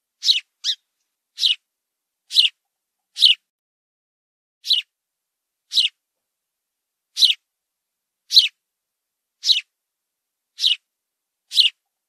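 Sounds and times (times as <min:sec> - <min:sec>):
sparrow chirping: 0:00.2 - 0:01.6, 0:02.3 - 0:03.4, 0:04.6 - 0:04.9, 0:05.7 - 0:06.0, 0:07.1 - 0:07.4, 0:08.3 - 0:08.6, 0:09.4 - 0:09.7, 0:10.6 - 0:10.9, 0:11.5 - 0:11.8.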